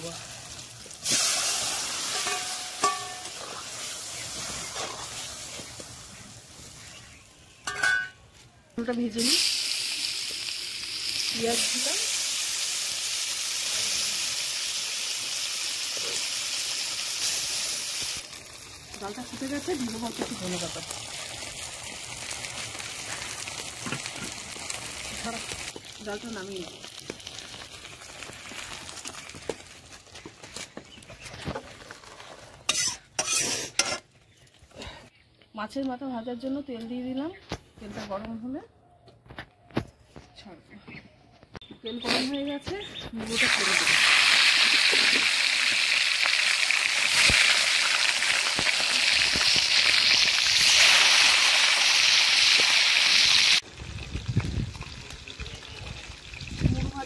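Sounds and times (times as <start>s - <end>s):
fish frying in hot oil: 0.0s - 7.7s, 9.0s - 29.9s, 43.3s - 57.0s
metal spatula scraping in pot: 32.2s - 34.1s.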